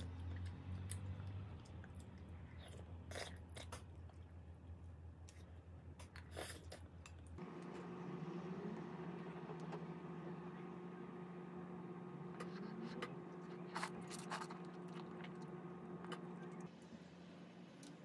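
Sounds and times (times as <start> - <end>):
steady hum: 7.4 - 18.0.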